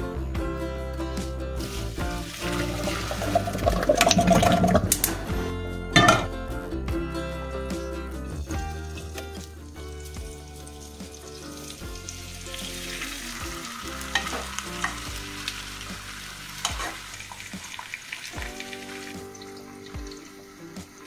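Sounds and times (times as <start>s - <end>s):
soft background music: 0.0s - 21.0s
potato slices sizzling in oil: 1.6s - 4.0s, 8.4s - 21.0s.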